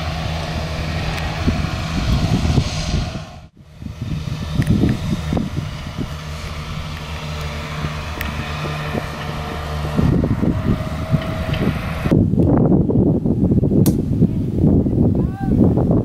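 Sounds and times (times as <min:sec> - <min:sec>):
motor humming: 0:00.0 - 0:12.2
wind rumbling on microphone: 0:00.0 - 0:16.0.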